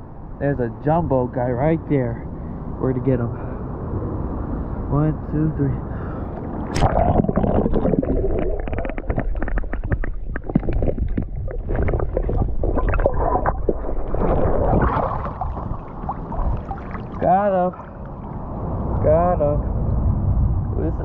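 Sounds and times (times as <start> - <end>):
camera splashing into water: 6.4 - 17.2
muffled underwater rumble: 6.4 - 21.0
stones clicking underwater: 6.7 - 14.4.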